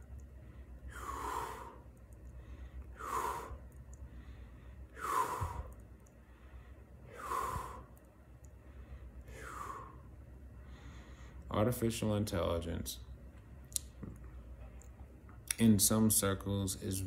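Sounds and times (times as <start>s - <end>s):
man breathing: 0.3s - 11.5s.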